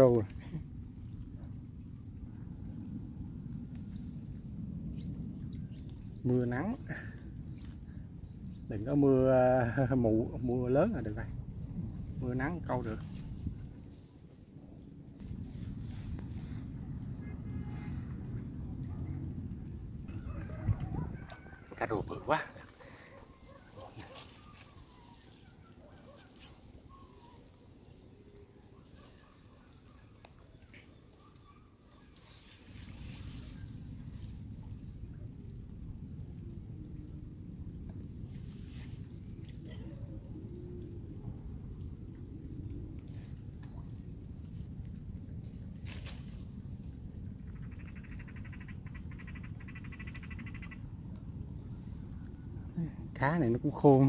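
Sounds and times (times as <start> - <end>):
frog trilling: 47.5 - 51.0
distant bird chirps: 47.6 - 50.9.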